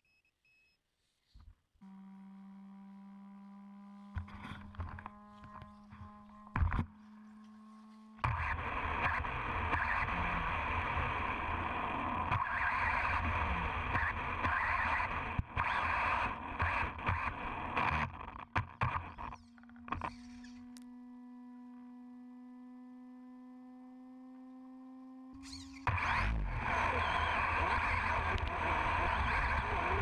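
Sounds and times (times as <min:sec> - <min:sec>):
electric motor whine: 0:01.8 - 0:17.2, 0:18.8 - 0:30.0.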